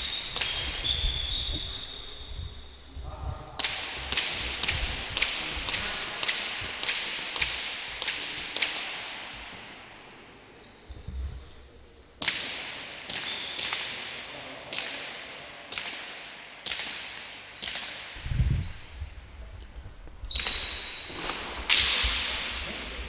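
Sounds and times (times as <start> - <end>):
short squeaks: 20.2 - 21.3.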